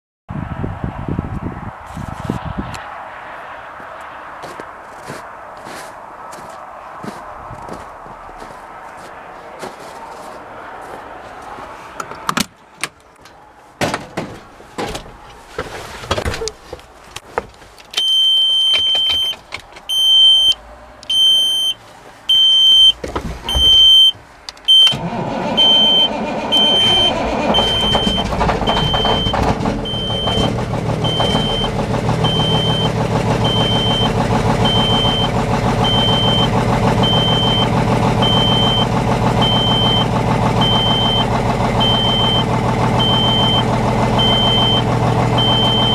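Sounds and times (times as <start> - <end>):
dash warning beeper: 18.0 - 45.9
diesel engine starting and idling: 18.0 - 45.9
knocks and clicks in truck cab: 22.9 - 23.9.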